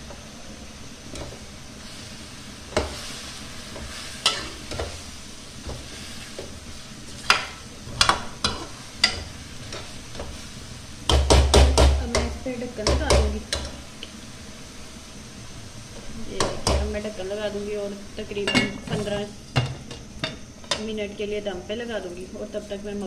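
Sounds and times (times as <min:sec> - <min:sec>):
food sizzling: 0:00.0 - 0:23.0.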